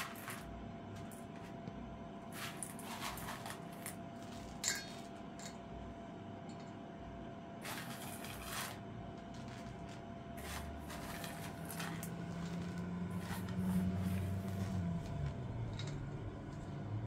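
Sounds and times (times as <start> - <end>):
low hum: 0.0 - 17.0
raisins scraped from steel bowl: 7.6 - 14.9
hand working through flour: 7.6 - 15.7.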